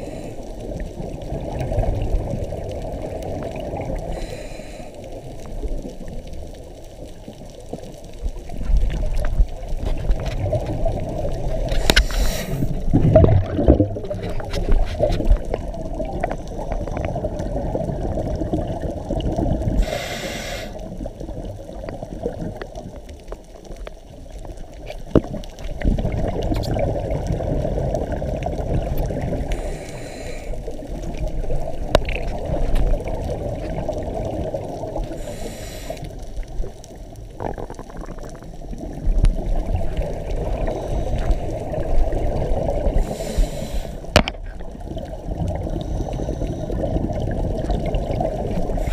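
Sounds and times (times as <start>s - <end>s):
regulator inhale hiss: 0.0s - 0.7s, 4.0s - 5.2s, 11.7s - 12.8s, 19.8s - 21.0s, 29.4s - 30.8s, 35.0s - 36.3s, 40.6s - 41.7s, 42.9s - 44.1s, 45.6s - 46.9s, 48.6s - 48.9s
bubbling water: 0.0s - 4.3s, 5.2s - 19.9s, 20.8s - 48.9s.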